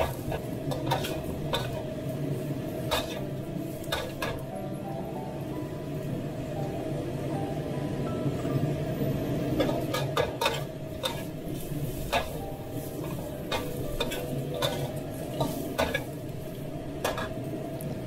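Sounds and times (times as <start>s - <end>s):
metal spatula scraping a wok: 0.0s - 2.0s, 2.8s - 4.4s, 9.6s - 17.4s
food sizzling: 0.0s - 5.1s, 9.3s - 18.0s.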